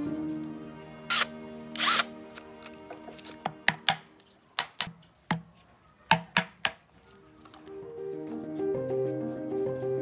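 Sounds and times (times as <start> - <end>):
faint background music: 0.0 - 10.0
cordless drill burst: 1.1 - 2.1.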